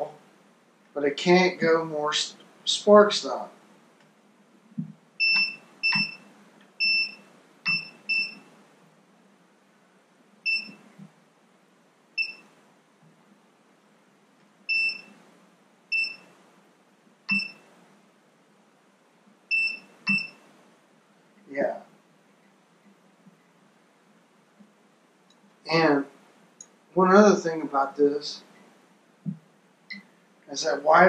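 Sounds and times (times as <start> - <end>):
short high-pitched beeps: 5.2 - 8.5, 10.4 - 10.8, 12.2 - 12.5, 14.7 - 15.1, 15.9 - 16.3, 17.3 - 17.7, 19.5 - 20.4.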